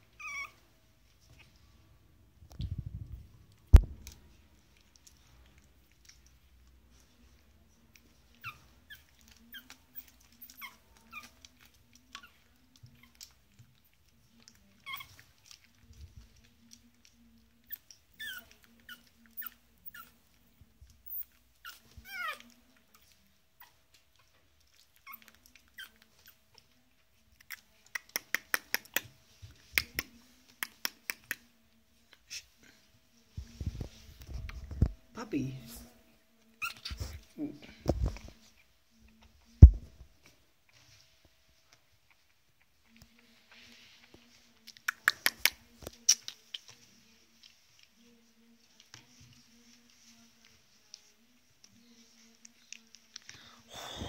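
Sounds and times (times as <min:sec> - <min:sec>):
puppy squeaky whimpers: 0:00.1 - 0:00.6, 0:14.8 - 0:15.3, 0:17.7 - 0:20.2, 0:21.0 - 0:22.5, 0:36.6 - 0:37.1.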